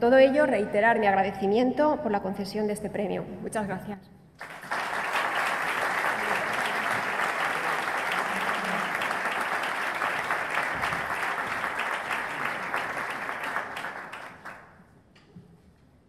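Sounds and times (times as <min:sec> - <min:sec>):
audience applauding: 0:04.4 - 0:14.8.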